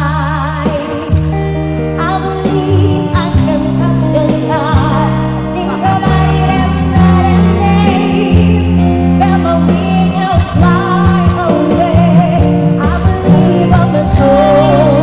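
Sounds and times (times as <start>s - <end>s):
live band playing: 0.0s - 15.0s
woman singing into microphone: 0.0s - 15.0s.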